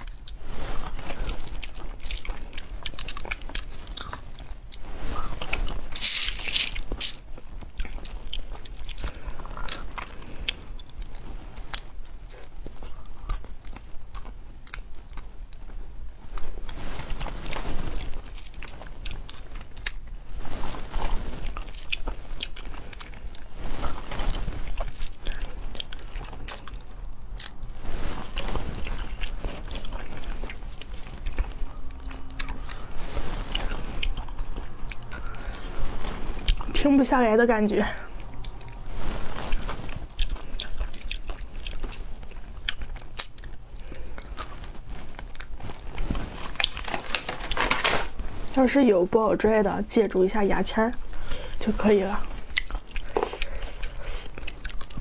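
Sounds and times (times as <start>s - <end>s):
sucking and chewing snails: 0.0s - 55.0s.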